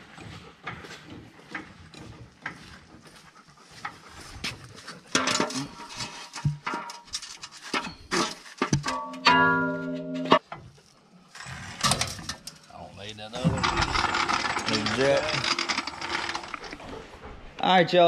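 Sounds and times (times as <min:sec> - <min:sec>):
dog panting: 0:00.0 - 0:06.0.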